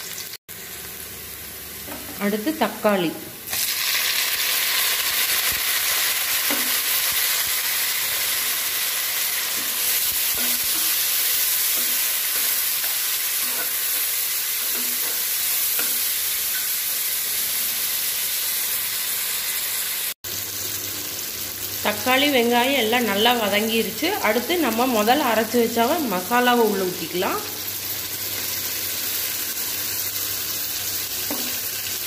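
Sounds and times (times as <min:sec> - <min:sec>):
food sizzling in hot oil: 0:00.0 - 0:32.0
spatula knocking and scraping pan: 0:06.4 - 0:06.8, 0:09.5 - 0:16.7, 0:31.3 - 0:31.6.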